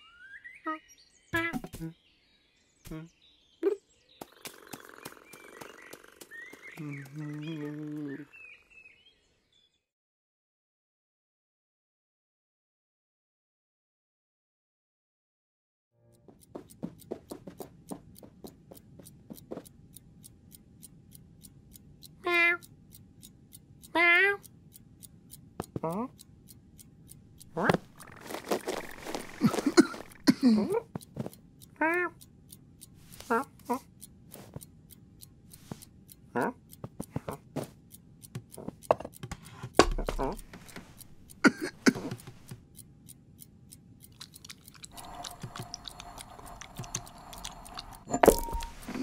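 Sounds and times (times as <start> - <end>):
clock ticking: 4.5 - 8.2, 16.1 - 49.0.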